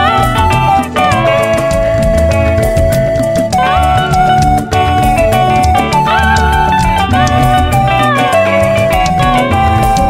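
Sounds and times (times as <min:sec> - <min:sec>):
bass line: 0:00.0 - 0:10.0
melody of long held notes: 0:00.0 - 0:10.0
quick steady percussion beat: 0:00.0 - 0:10.0.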